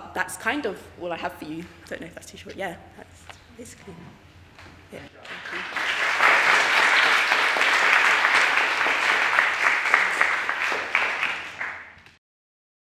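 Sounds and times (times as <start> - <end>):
audience applauding: 5.2 - 12.2.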